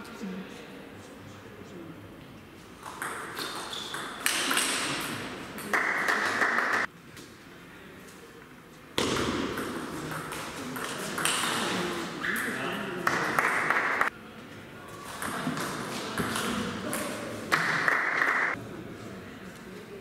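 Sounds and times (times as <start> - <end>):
table tennis ball pinging: 2.8 - 6.0.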